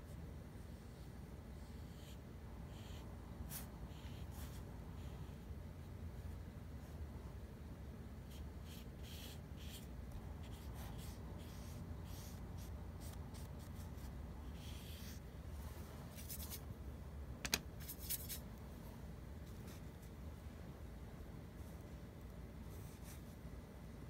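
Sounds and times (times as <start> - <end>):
low steady hum: 0.0 - 24.0
drawing tool scratching paper: 8.2 - 15.2.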